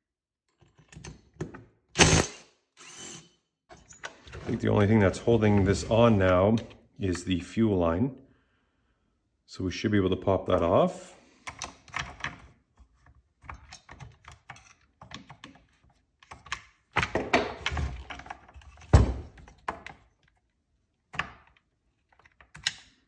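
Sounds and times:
plastic and metal parts rattling: 13.4 - 20.5.

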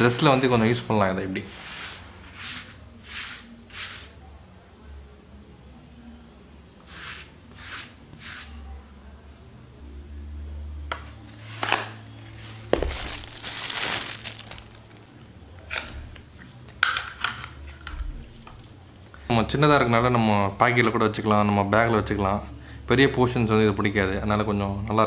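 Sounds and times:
crinkling tearing rustle: 12.5 - 15.1.

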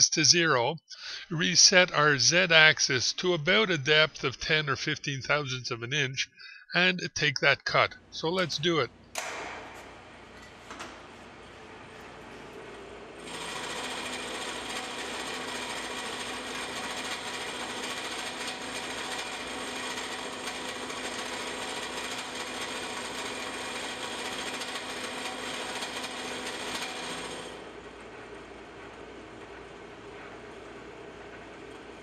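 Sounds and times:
machine spindle running: 9.2 - 32.0
milling cutter cutting steel: 13.2 - 27.7.

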